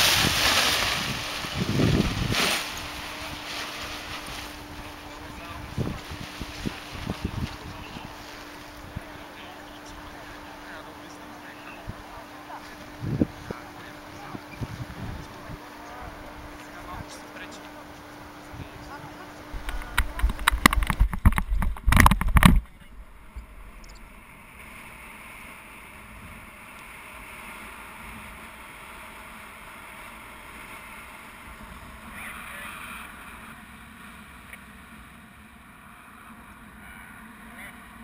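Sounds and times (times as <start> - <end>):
wind rushing over camera: 0.0 - 8.2, 19.5 - 25.2.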